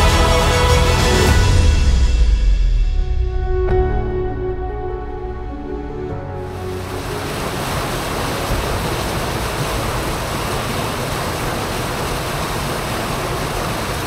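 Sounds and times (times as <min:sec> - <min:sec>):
water rushing down channel: 0:06.4 - 0:14.0.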